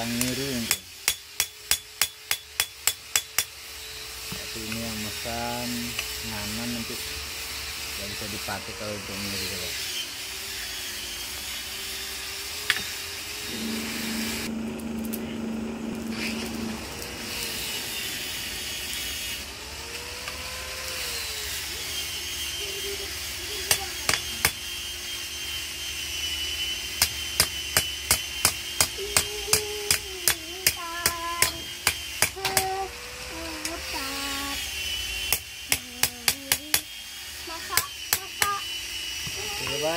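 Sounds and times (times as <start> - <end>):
forge air blower hissing: 0.0 - 9.9, 11.6 - 25.1, 26.2 - 39.9
hammer striking blade on anvil: 0.2 - 3.6, 23.7 - 24.6, 27.0 - 32.7.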